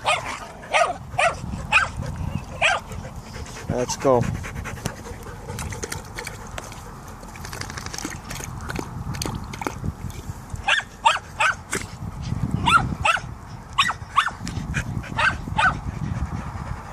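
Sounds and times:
dog yipping and whining: 0.0 - 2.9
dog lapping from metal bowl: 5.3 - 9.8.

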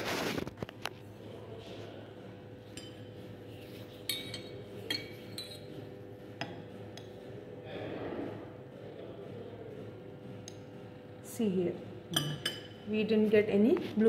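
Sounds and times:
glass rod clinking against flask: 4.0 - 5.8.

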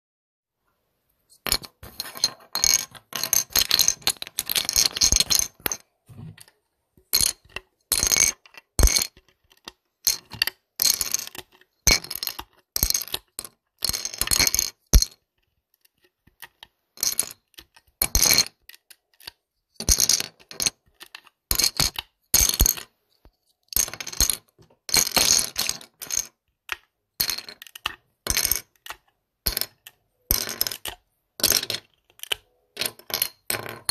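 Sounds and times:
plastic bricks clattering: 1.4 - 15.2, 23.7 - 33.9.

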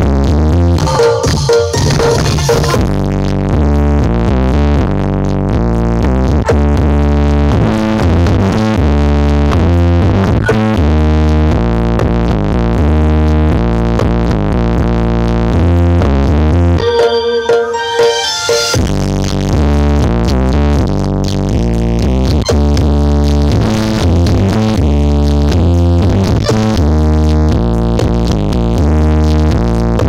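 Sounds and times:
loud electronic dance music: 0.2 - 4.9, 15.0 - 30.0.

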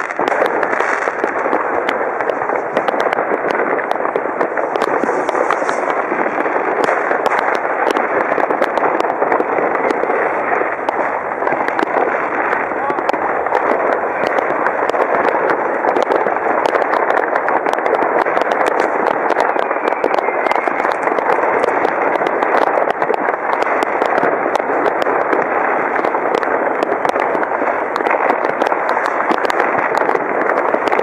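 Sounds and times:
fireworks and firecrackers: 0.0 - 31.0.

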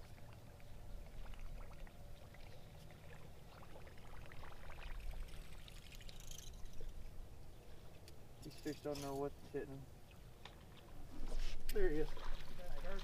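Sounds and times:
water lapping against boat hull: 0.0 - 7.0, 10.0 - 13.0
water splash: 11.8 - 13.0.

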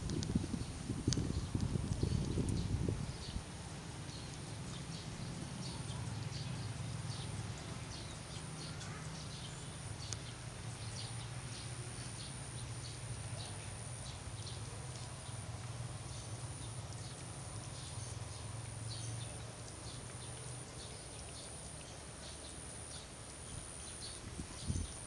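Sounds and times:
steady high-pitched whine: 0.0 - 25.0.

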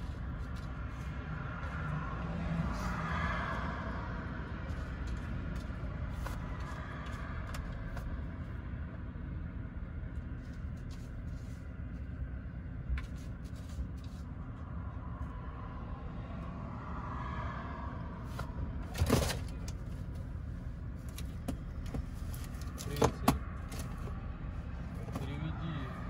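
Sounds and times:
car engine idling: 18.1 - 26.0.

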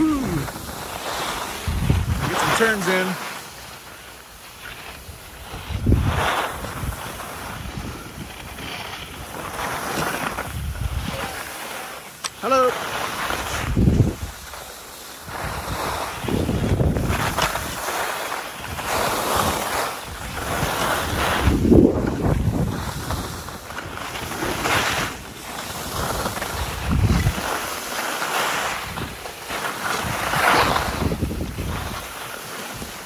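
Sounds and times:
skis scraping over snow: 0.0 - 33.0
wind buffeting microphone: 1.4 - 2.8, 5.0 - 9.6, 10.3 - 11.4, 13.4 - 14.5, 15.2 - 17.8, 18.6 - 25.2, 25.8 - 27.7, 30.0 - 32.1.

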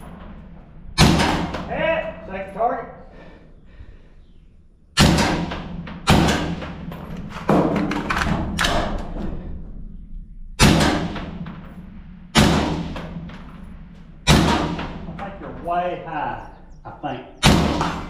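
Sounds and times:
echoing rifle shots: 0.0 - 2.6, 5.0 - 16.0, 17.4 - 18.0.

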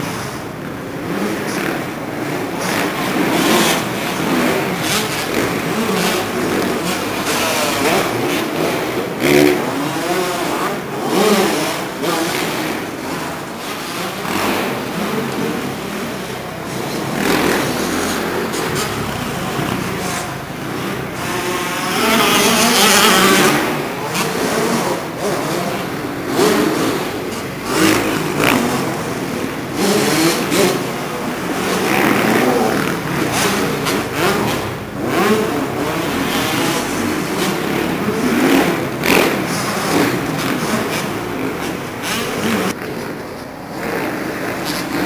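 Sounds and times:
motocross bike engines revving: 0.0 - 45.0.

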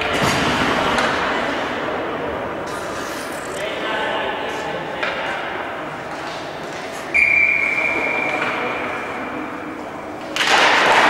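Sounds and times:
broad rink noise: 0.0 - 11.0.

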